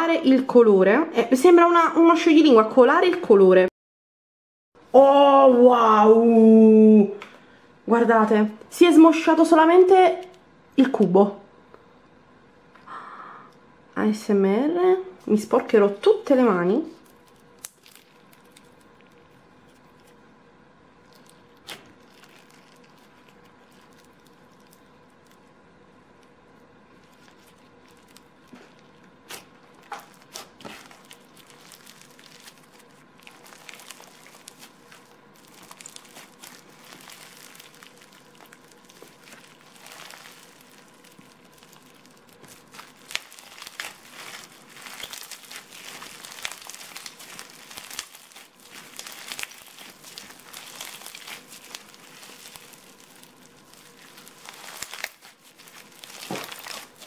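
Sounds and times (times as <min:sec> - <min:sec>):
slime crackling and popping: 0:16.9 - 0:20.3, 0:20.9 - 0:57.0.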